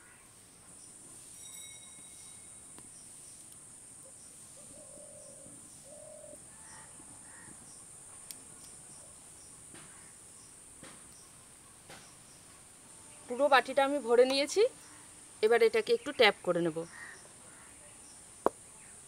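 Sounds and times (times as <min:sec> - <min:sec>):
high-pitched insect drone: 0:01.2 - 0:03.3.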